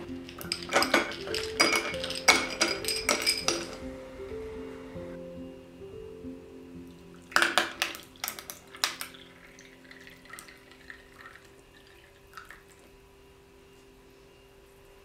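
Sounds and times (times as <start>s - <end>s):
ice cubes clinking and cracking: 0.2s - 3.8s, 7.3s - 12.7s
tea trickling into a cup: 6.9s - 13.0s.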